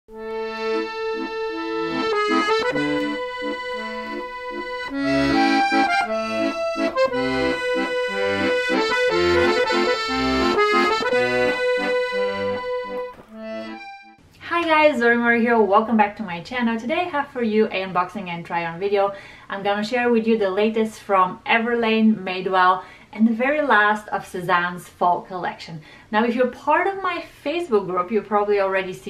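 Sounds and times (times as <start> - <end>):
bouncy instrumental music: 0.1 - 14.2.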